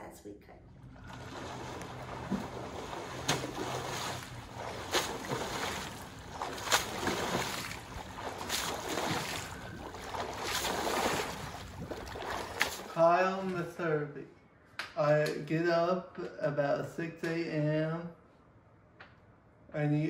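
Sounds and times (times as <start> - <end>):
water sloshing: 0.7 - 13.1
swimmer splashing: 0.8 - 13.1.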